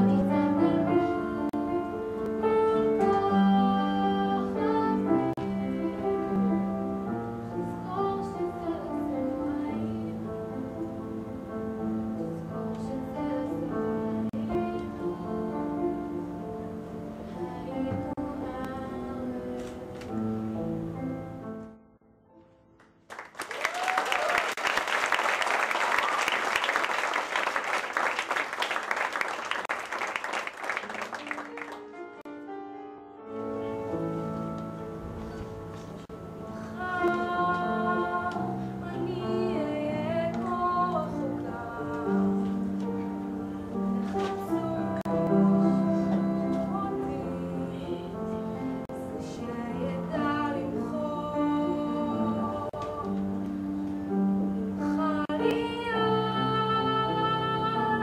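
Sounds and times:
woman singing: 0:00.0 - 0:01.6, 0:02.5 - 0:06.8, 0:07.5 - 0:10.8, 0:12.6 - 0:16.2, 0:17.2 - 0:19.8, 0:36.5 - 0:42.8, 0:44.0 - 0:53.6, 0:54.8 - 0:58.0
audience applause: 0:23.1 - 0:32.2.

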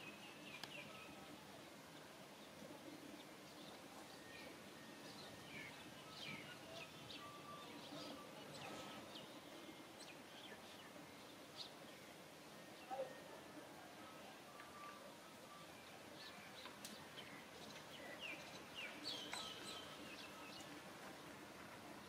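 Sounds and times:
faint small-bird chirps: 0:14.5 - 0:20.7.

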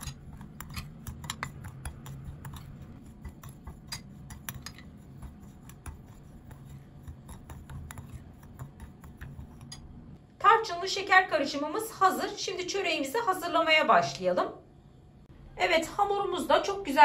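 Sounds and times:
spoon scraping through sugar: 0:00.0 - 0:09.8.

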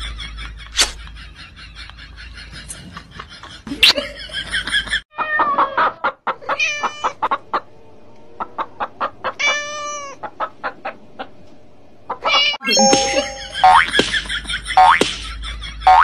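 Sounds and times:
hen clucking: 0:05.2 - 0:12.6.

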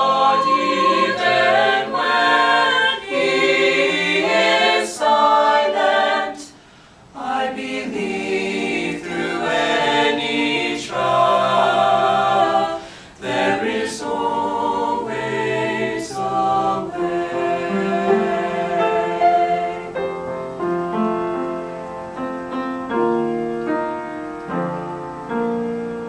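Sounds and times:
vocal ensemble singing a cappella: 0:00.0 - 0:20.2.

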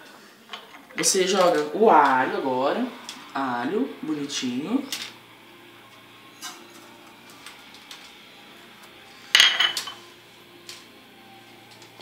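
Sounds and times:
dish clattering down: 0:09.4 - 0:10.0.

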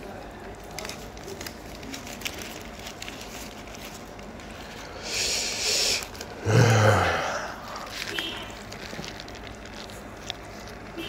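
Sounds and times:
paper wrapper crinkling: 0:00.0 - 0:06.6, 0:07.2 - 0:11.0
man breathing in: 0:04.6 - 0:07.9
low voiced murmur: 0:05.0 - 0:08.1.

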